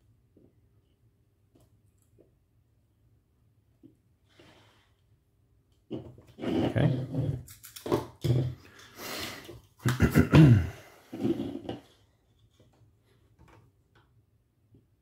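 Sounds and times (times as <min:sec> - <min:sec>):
man mumbling: 0:06.5 - 0:07.1, 0:09.9 - 0:11.0.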